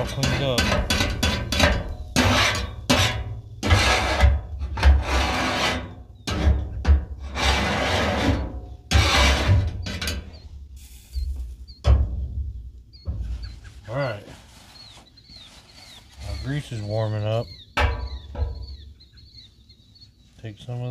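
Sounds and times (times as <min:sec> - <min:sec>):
metal scraper scraping steel griddle: 0:00.0 - 0:10.4.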